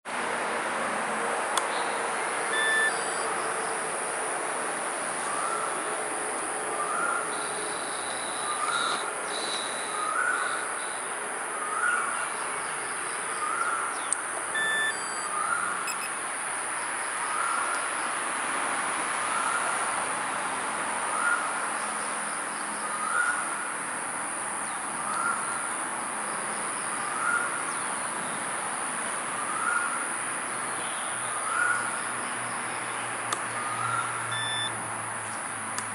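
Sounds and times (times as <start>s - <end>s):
steady high-pitched hiss: 1.4s - 18.3s
bird chirping: 1.7s - 3.9s, 6.7s - 11.1s, 11.7s - 16.1s.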